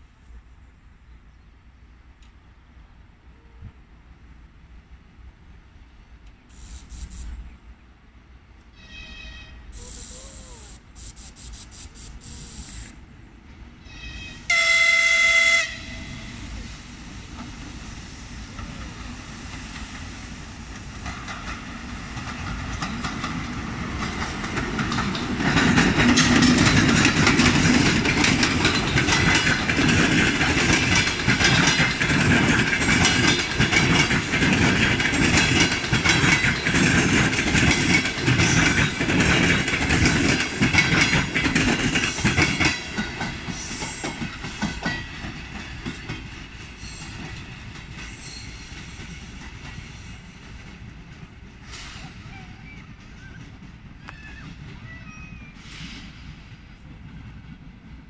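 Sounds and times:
train horn: 0:08.7 - 0:12.8, 0:13.8 - 0:16.5
diesel locomotive running: 0:09.0 - 0:58.0
train wheels clattering over rail joints: 0:18.5 - 0:52.1.

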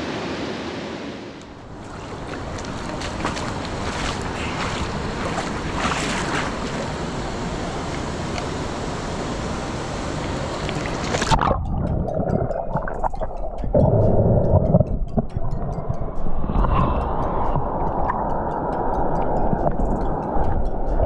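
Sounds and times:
rushing creek water: 0:01.1 - 0:11.5
muffled low rumble and bubbling: 0:01.5 - 0:21.0.

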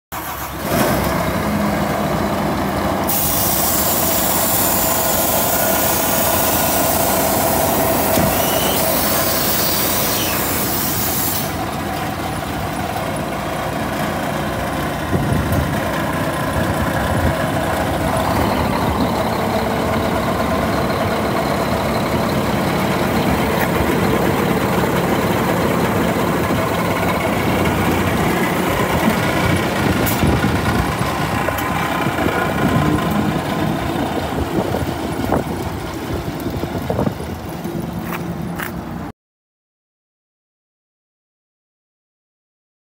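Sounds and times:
diesel truck engine idling: 0:00.1 - 0:39.1
loud hiss: 0:03.0 - 0:11.8.

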